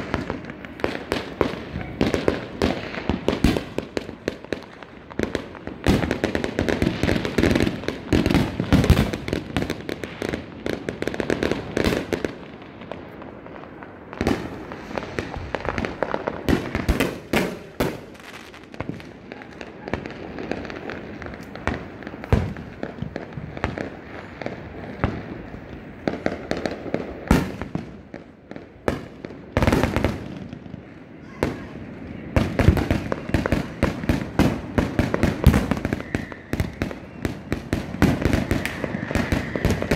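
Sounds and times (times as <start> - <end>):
fireworks bangs and crackles: 0.0 - 39.9.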